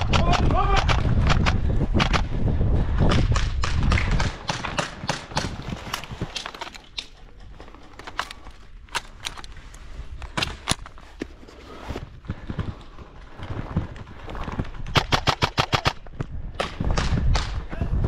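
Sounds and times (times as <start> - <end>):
airsoft rifle handling clicks: 5.3 - 11.3.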